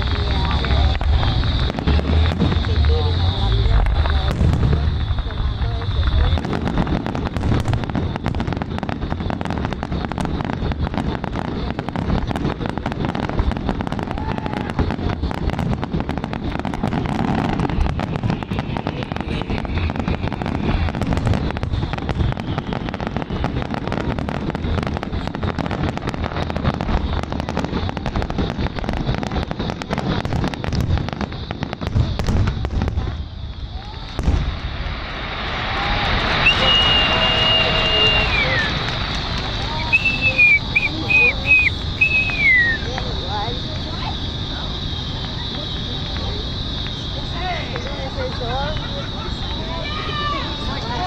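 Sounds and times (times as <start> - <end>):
fireworks booming and crackling: 0.0 - 51.0.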